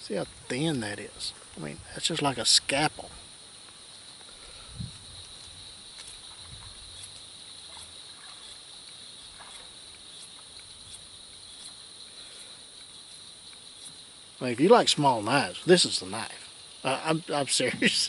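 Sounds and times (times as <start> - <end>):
insect chorus buzzing: 0.0 - 18.0
faint ticks: 3.6 - 14.0.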